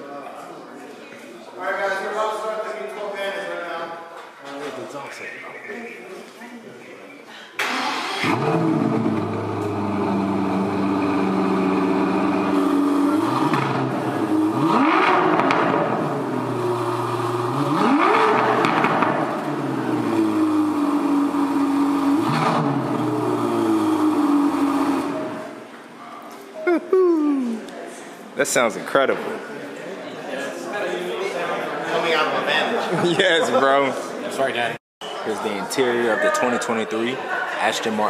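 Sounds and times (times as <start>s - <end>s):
car engine revving: 7.7s - 25.6s.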